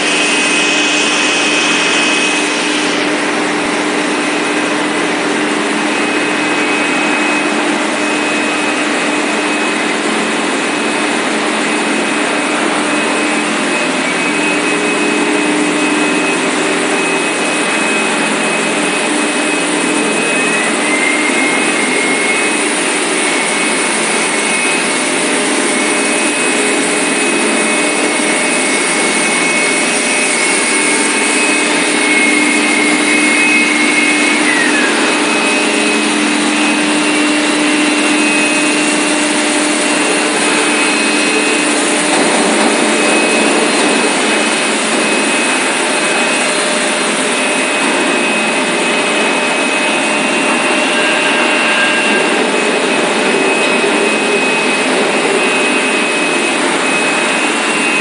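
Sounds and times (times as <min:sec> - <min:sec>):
high machine whine: 0:00.0 - 0:58.0
machinery hum and hiss: 0:00.0 - 0:58.0.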